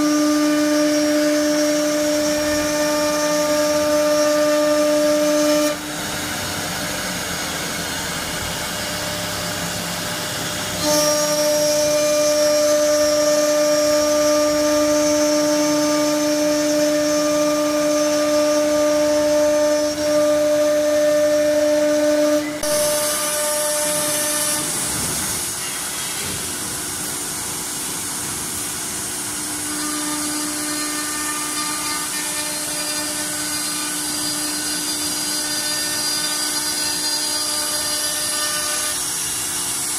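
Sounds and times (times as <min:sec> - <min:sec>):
router spindle whine: 0:00.0 - 0:27.6, 0:29.1 - 0:39.9
router bits cutting wood: 0:29.6 - 0:39.9.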